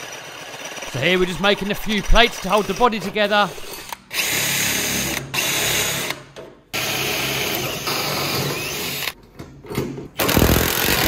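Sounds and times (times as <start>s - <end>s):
cordless drill drilling metal: 3.5s - 6.2s, 6.8s - 9.2s, 10.2s - 11.0s.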